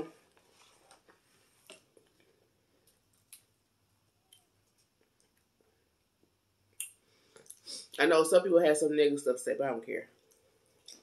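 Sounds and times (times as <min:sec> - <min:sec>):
faint clicks of eating crisp food: 0:00.3 - 0:03.6, 0:04.3 - 0:08.0, 0:10.2 - 0:11.0.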